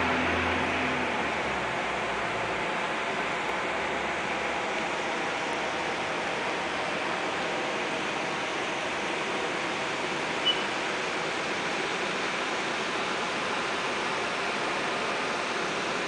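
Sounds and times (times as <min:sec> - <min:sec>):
steady rushing noise: 0:00.0 - 0:16.0
short high chirp: 0:10.4 - 0:10.7.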